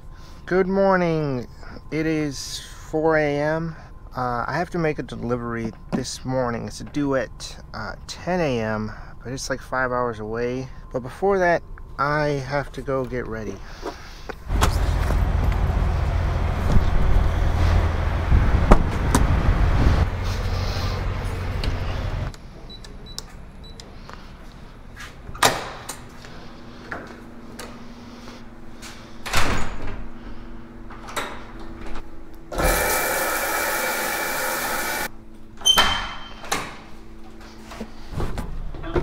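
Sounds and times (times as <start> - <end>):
steady hum: 0.0 - 35.6
truck engine idling: 14.5 - 22.4
shower spraying: 32.6 - 35.1.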